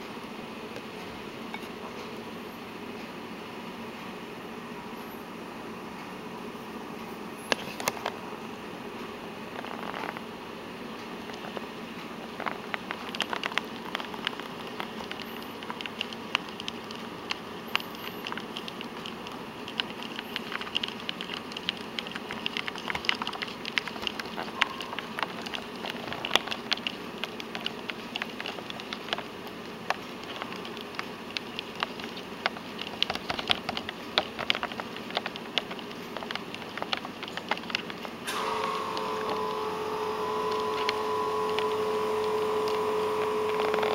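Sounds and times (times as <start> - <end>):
background hum: 7.0 - 43.9
crayfish clicking on plastic: 11.2 - 43.9.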